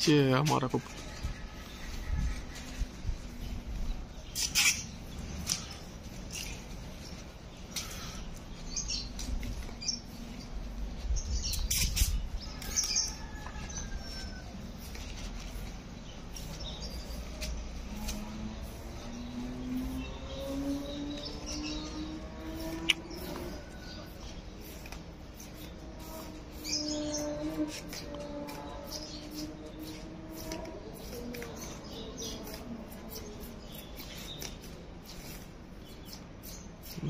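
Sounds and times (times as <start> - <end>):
wind rumble on microphone: 1.0 - 4.2
bird chirps: 16.0 - 30.0.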